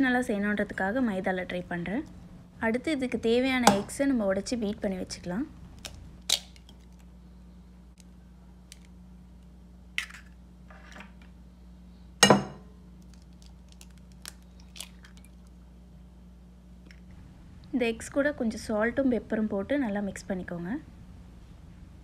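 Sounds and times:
eggshells crackling apart: 5.7s - 7.1s, 13.0s - 15.6s.

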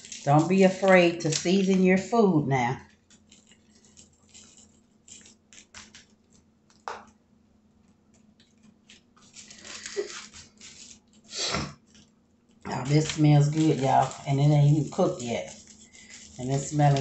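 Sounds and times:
hands rustling on foil: 0.0s - 6.8s, 8.4s - 17.0s.

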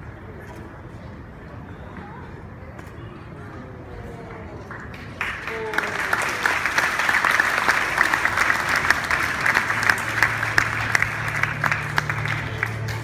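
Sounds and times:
audience applauding: 4.9s - 13.0s
low steady drone: 8.2s - 13.0s.

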